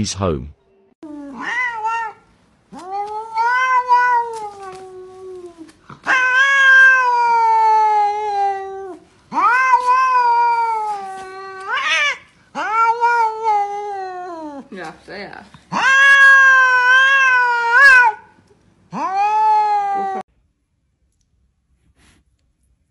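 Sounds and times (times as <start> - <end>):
cat yowling: 1.0 - 14.7, 15.7 - 18.3, 18.9 - 20.3.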